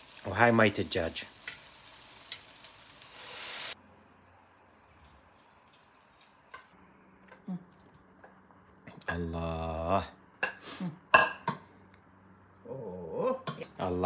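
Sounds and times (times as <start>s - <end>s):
broth sizzling in hot pot: 0.0s - 6.8s.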